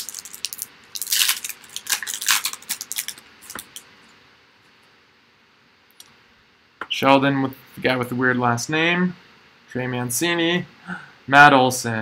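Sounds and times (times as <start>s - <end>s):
foil wrapper crinkling: 0.0s - 3.8s.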